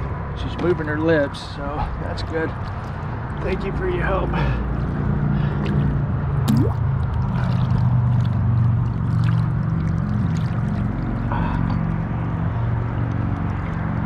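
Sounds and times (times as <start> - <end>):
low engine-like hum: 0.0 - 14.0
water sloshing and gurgling: 1.6 - 14.0
small splashes: 2.2 - 3.6, 4.4 - 14.0.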